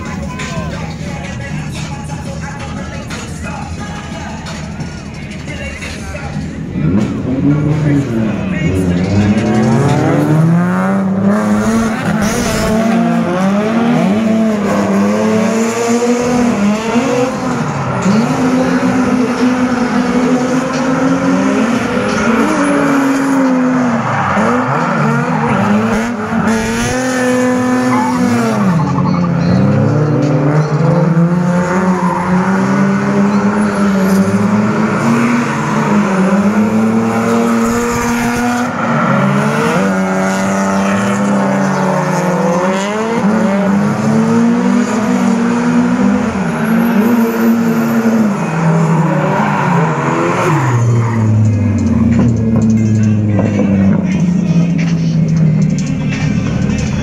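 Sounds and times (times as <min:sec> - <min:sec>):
car engines revving: 0:00.0 - 0:57.0.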